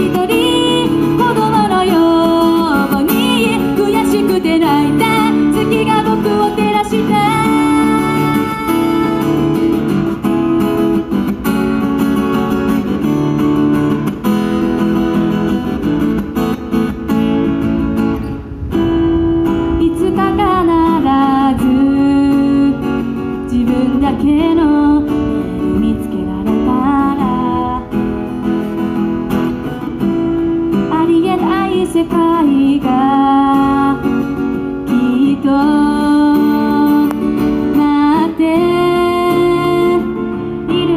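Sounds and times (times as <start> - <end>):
woman singing: 0.0 - 10.2, 19.6 - 28.5, 30.7 - 40.9
strummed acoustic guitar: 0.0 - 40.9.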